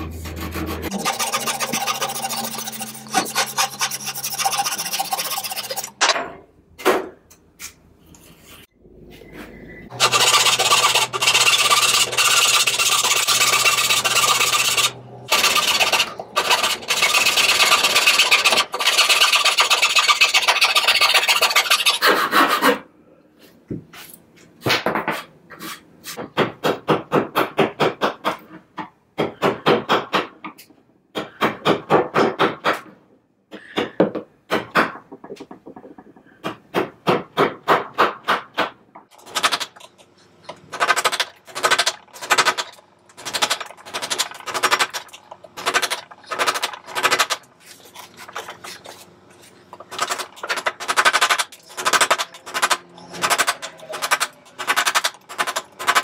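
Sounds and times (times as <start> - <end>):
rasp filing wood: 0.0 - 6.0, 9.9 - 22.8.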